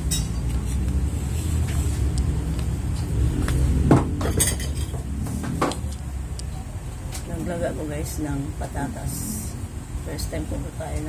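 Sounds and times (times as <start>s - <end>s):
plates and cutlery clinking: 0.0s - 0.8s, 4.1s - 5.9s
steady low hum: 0.0s - 11.0s.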